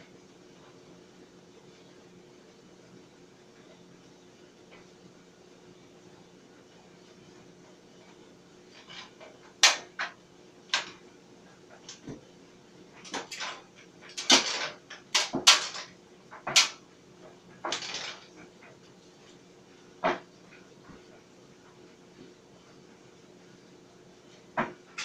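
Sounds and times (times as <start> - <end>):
sharp knocks and clatters: 8.8 - 11.0, 13.0 - 16.8, 17.6 - 18.8, 20.0 - 20.3.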